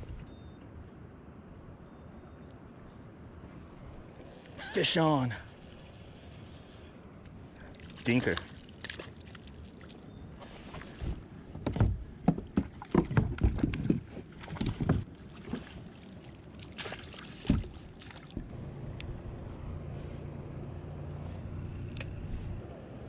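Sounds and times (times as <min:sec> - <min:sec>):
low motor hum: 0:00.0 - 0:00.8, 0:17.6 - 0:23.0.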